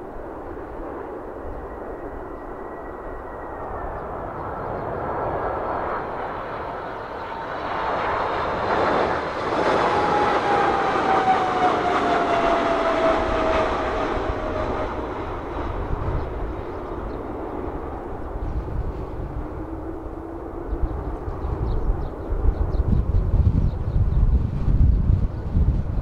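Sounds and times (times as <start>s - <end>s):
jet engine roar: 0.0s - 26.0s
engine whine sliding down in pitch: 7.5s - 17.2s.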